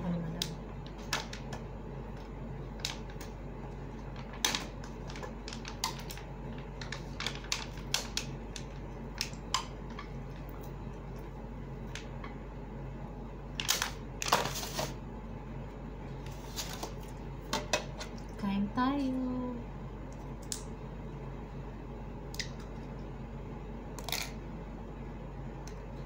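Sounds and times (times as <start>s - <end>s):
steady low hum: 0.0s - 26.0s
foil tray clicking and crinkling: 4.2s - 9.4s.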